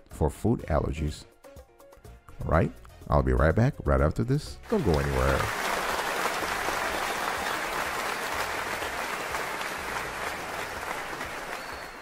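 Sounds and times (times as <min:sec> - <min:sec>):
applause: 0:04.6 - 0:12.0.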